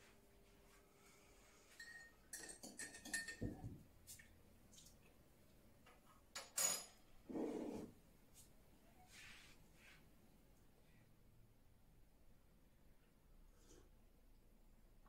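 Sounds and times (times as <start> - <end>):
mug and spoon clinking: 1.7 - 3.6.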